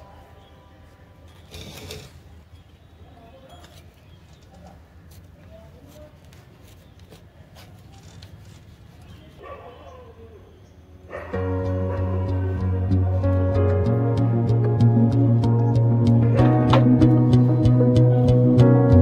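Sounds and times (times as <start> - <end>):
scraper scraping soil in pot: 1.4 - 2.3
background music: 11.3 - 19.0.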